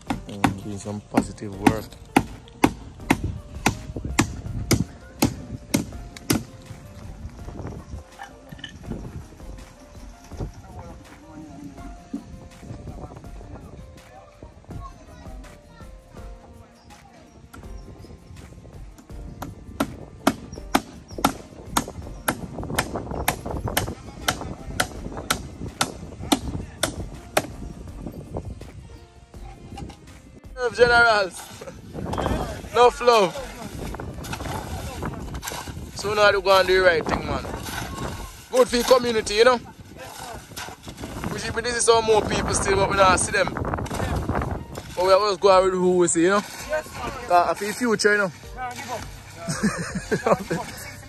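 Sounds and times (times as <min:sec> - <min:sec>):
hand hammering: 0:00.0 - 0:06.6, 0:19.0 - 0:27.6.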